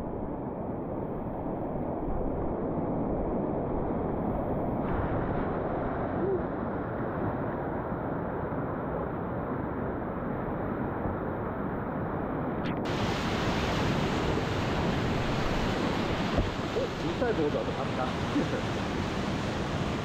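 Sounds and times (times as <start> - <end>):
rushing whitewater: 12.8 - 20.0.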